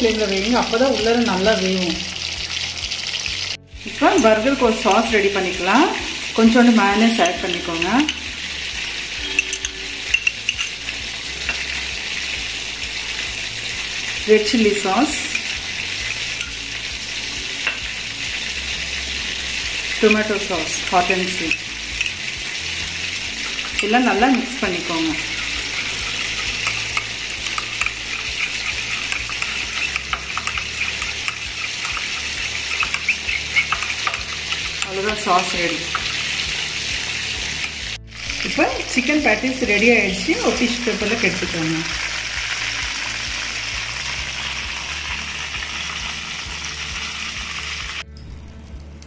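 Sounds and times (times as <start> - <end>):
patties sizzling in oil: 0.0 - 48.8
metal spoon clicking on glass bowl: 9.2 - 10.8, 25.9 - 28.4, 29.0 - 32.1, 32.8 - 36.2
spoon stirring thick sauce: 21.2 - 37.9.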